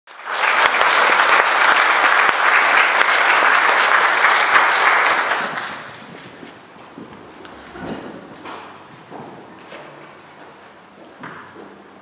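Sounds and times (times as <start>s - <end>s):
audience applauding: 0.1s - 6.3s.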